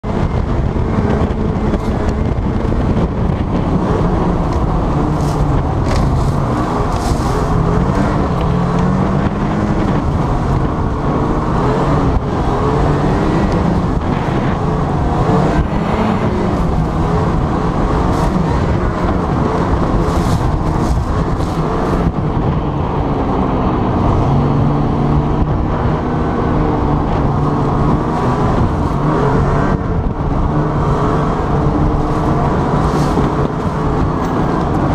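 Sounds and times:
snowmobile engine running hard: 0.0s - 34.9s.

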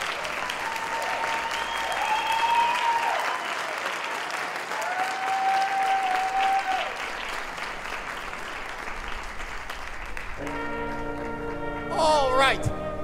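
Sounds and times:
audience applauding: 0.0s - 12.0s
person cheering: 0.6s - 3.4s, 4.8s - 7.0s.

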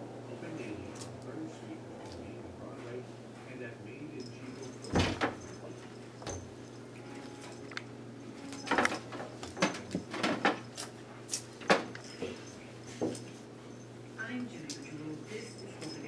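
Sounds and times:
cats wrestling with bumps and scuffles: 4.4s - 14.0s.

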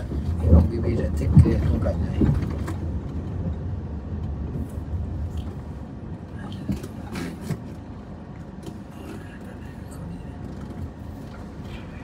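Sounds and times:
car knocks and rattles: 0.0s - 5.5s
engine and tyres rumbling: 0.0s - 12.0s.

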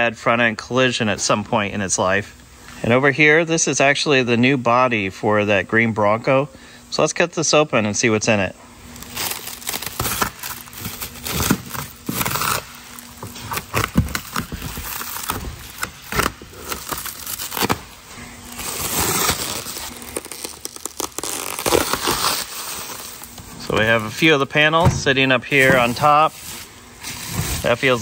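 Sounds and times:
plastic wrap crinkling and ripping: 8.9s - 24.4s
plastic wrap being slit with knife: 9.0s - 17.9s, 18.5s - 23.3s.

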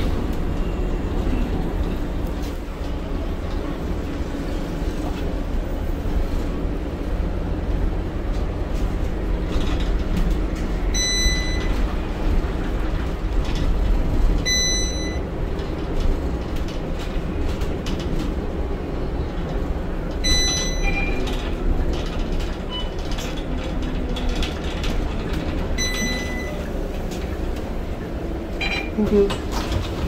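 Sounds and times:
bus engine and road rumble: 0.0s - 30.0s
short electronic beeps: 10.9s - 11.8s, 14.5s - 15.2s, 20.2s - 21.2s, 25.8s - 26.7s.

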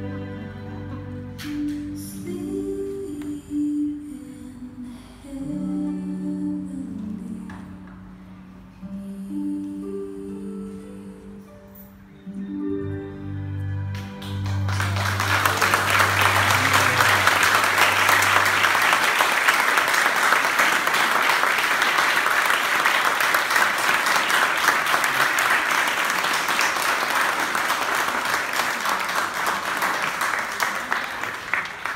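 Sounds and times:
congregation applauding: 13.9s - 31.9s.

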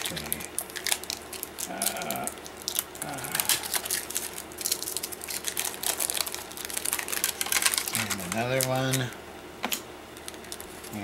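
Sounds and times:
plastic wrap crinkling: 0.0s - 9.2s, 10.1s - 11.0s.

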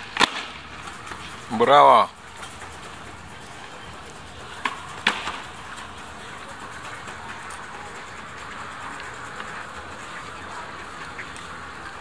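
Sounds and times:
hubbub of pedestrian street: 0.0s - 12.0s
sharp clacks: 2.3s - 11.6s.

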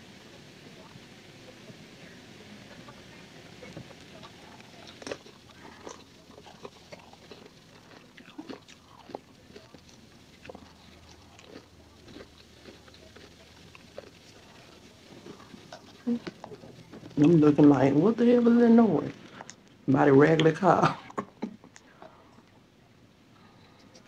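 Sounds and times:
biting and chewing: 3.6s - 18.1s.

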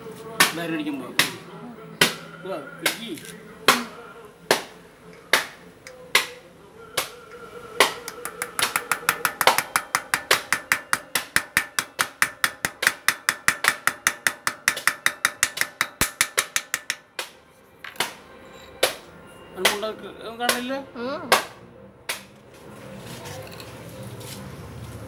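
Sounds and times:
hammer tapping on metal: 7.8s - 17.3s.

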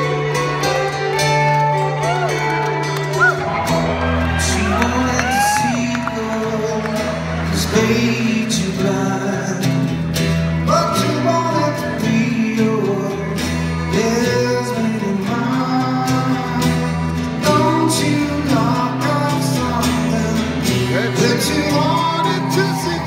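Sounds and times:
strummed acoustic guitar: 0.0s - 23.0s
man singing: 4.2s - 23.0s.

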